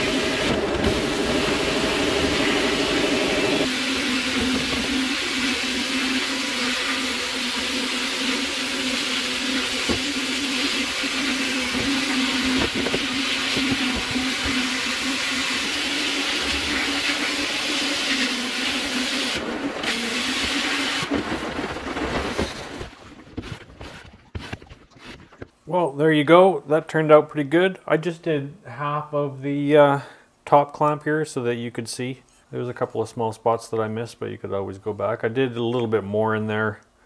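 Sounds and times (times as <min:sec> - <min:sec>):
blaster nozzle hissing: 0:00.0 - 0:21.1
steady hum: 0:00.0 - 0:22.2.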